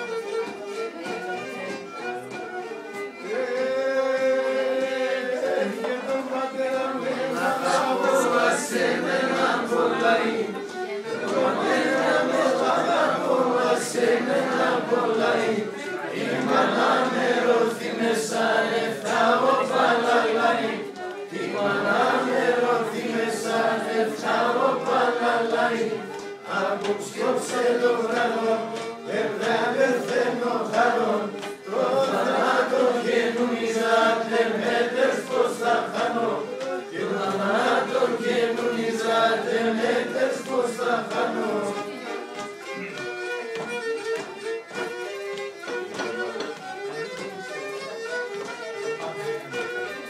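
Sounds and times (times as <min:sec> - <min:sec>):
violin: 0:00.0 - 0:50.0
group of people singing: 0:03.2 - 0:42.6.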